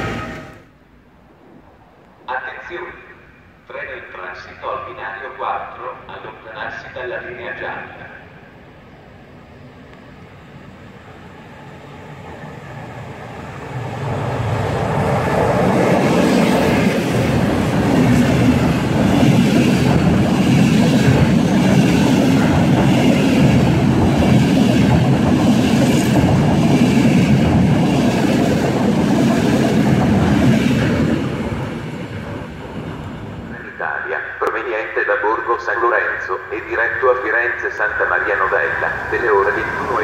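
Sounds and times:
train wheels rushing on rail: 0.0 - 0.7, 9.5 - 33.7.

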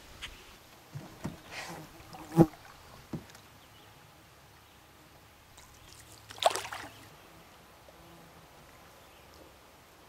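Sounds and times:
paddle splash in water: 5.6 - 7.1.

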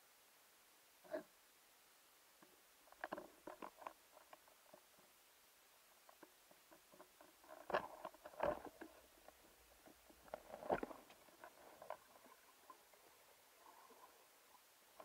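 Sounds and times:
faint underwater crackling clicks: 2.4 - 5.1, 6.0 - 15.0.

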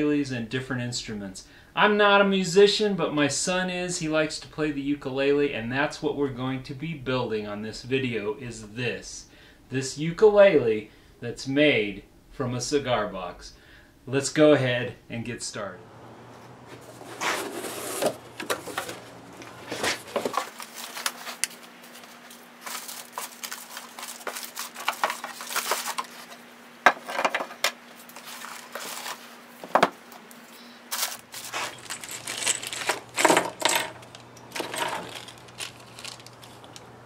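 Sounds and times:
rustling plastic bags and paper: 16.6 - 26.5, 27.2 - 29.7, 30.9 - 37.0
metal parts clinking on wood: 31.3 - 36.9.

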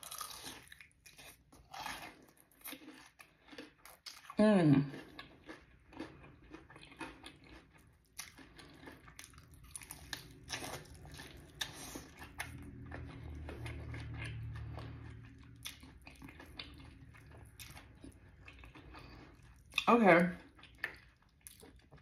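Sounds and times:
chewing crispy chicken: 0.0 - 22.0
low steady hum: 6.1 - 22.0.

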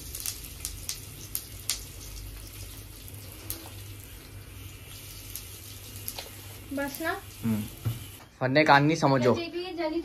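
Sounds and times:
hot oil sizzling: 0.0 - 8.3
spices popping and crackling: 0.0 - 8.3.

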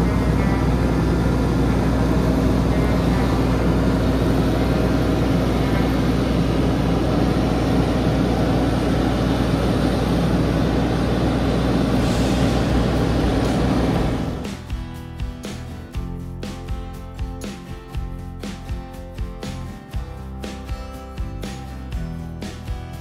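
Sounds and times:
harvest machinery engine drone: 0.0 - 15.8.

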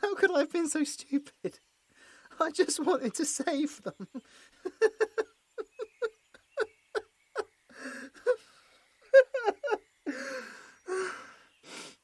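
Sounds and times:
man sobbing: 3.9 - 12.0.

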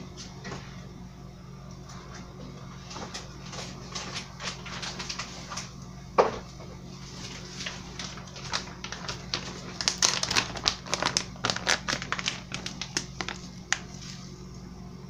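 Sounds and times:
plastic packet crinkling: 7.3 - 14.0.

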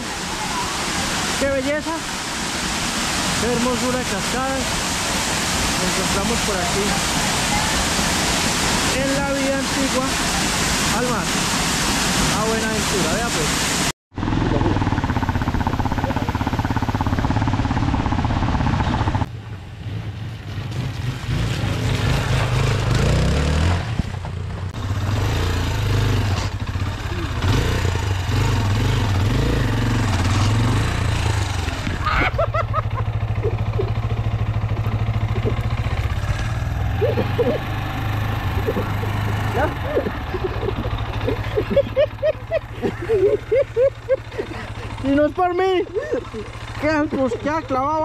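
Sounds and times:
falling water rushing: 0.0 - 13.9, 24.8 - 47.4
motorcycle engine at low revs: 14.1 - 48.0.

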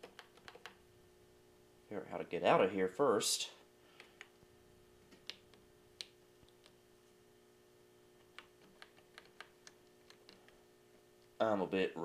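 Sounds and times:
keyboard keys clicking: 0.0 - 0.8, 8.3 - 10.5.

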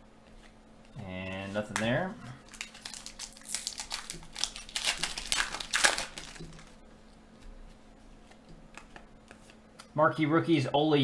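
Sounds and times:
plastic wrapper crinkling and tearing: 1.6 - 6.8.

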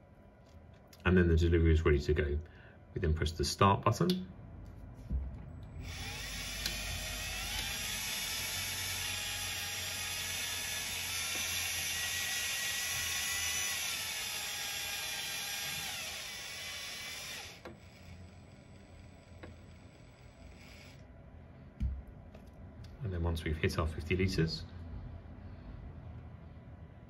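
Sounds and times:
fuel pump whining: 5.0 - 21.0.

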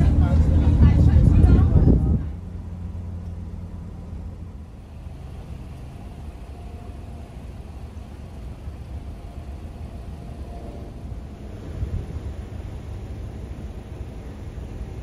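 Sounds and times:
car road rumble inside cabin: 0.0 - 11.0.

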